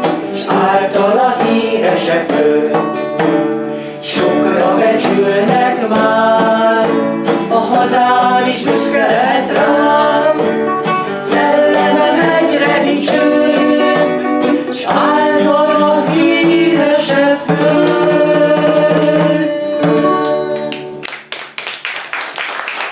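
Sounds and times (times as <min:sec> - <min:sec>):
man singing: 0:04.1 - 0:10.4.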